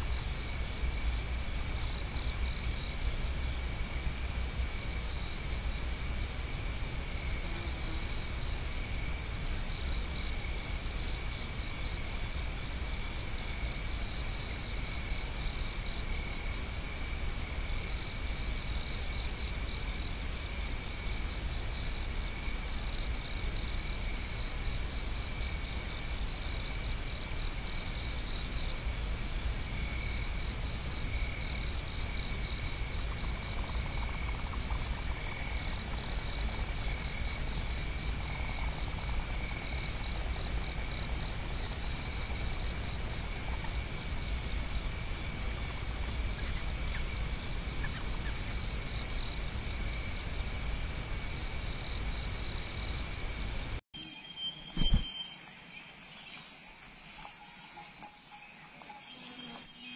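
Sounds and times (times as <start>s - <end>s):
night insects trilling: 0.0s - 59.9s.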